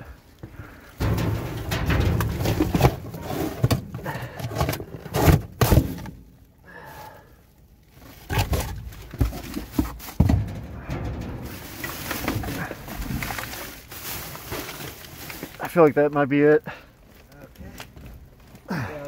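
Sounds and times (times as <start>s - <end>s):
cardboard boxes and bags rustling: 0.3s - 7.1s, 7.8s - 16.4s
knocks in dumpster: 1.0s - 4.1s, 10.1s - 13.2s.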